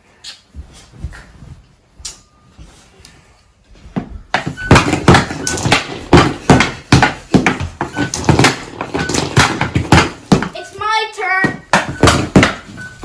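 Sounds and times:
hockey stick knocking puck: 0:04.3 - 0:10.6.

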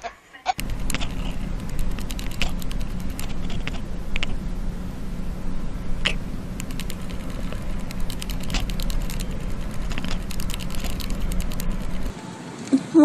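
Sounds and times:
cat purring: 0:00.6 - 0:04.4, 0:05.8 - 0:12.1
small clicks: 0:00.6 - 0:04.4, 0:06.6 - 0:12.8.

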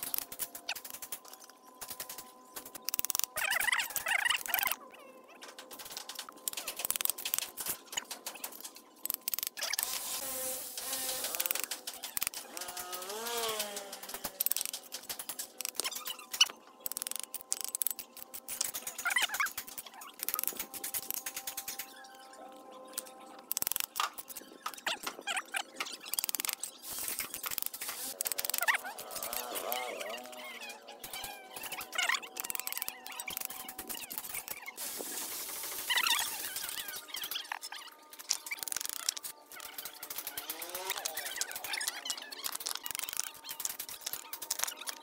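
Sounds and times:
high buzzing hiss: 0:09.8 - 0:11.6.

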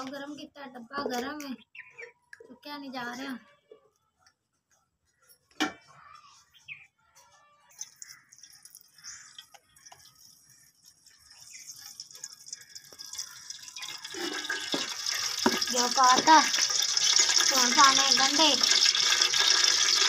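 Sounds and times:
liquid trickling into pot: 0:07.7 - 0:20.0
metal tin clinking: 0:07.8 - 0:20.0.

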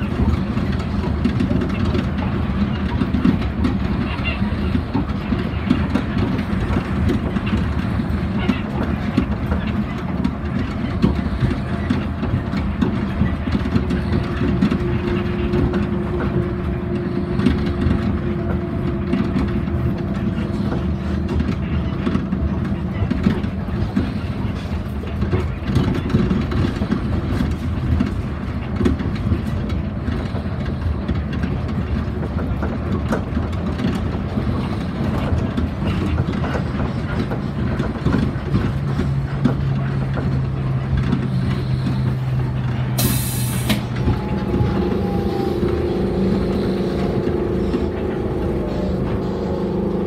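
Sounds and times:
people mover rumbling: 0:00.0 - 0:50.0
humming tone: 0:43.8 - 0:50.0.

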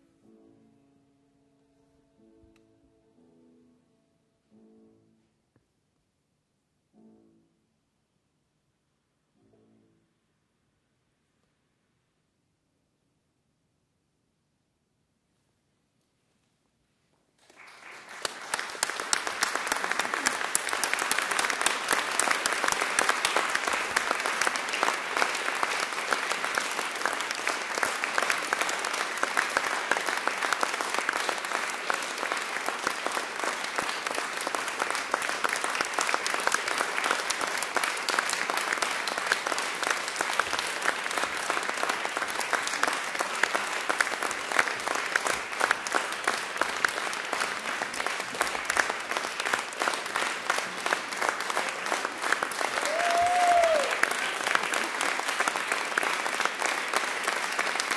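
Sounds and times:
audience applauding: 0:17.4 - 0:57.9.

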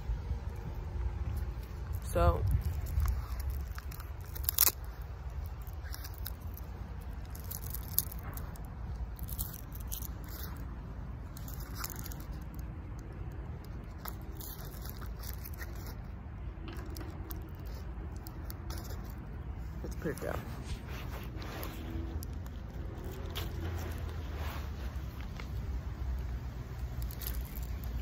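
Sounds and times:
wind rumble on microphone: 0:00.0 - 0:07.1
foil pouch crinkling: 0:01.4 - 0:16.1, 0:16.8 - 0:28.0.

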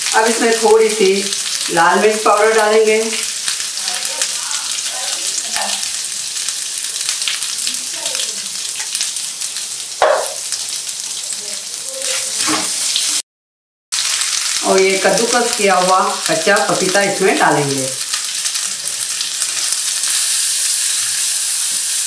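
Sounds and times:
spices sizzling in hot oil: 0:00.0 - 0:13.2, 0:13.9 - 0:22.0
sharp tap: 0:10.0 - 0:10.4.

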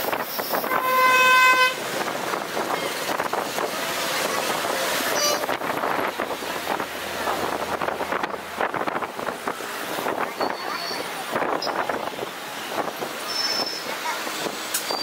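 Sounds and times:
passing street traffic: 0:00.0 - 0:15.0
vehicle horn honking: 0:00.7 - 0:01.8, 0:05.1 - 0:05.6.

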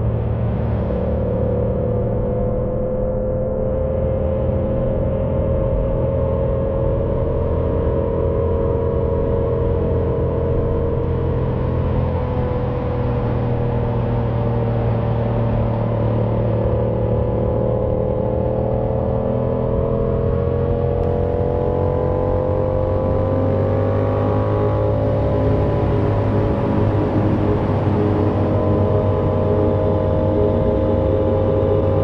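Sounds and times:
road noise: 0:00.0 - 0:32.0
motorcycle engine accelerating: 0:06.8 - 0:32.0
wind noise: 0:21.0 - 0:32.0.

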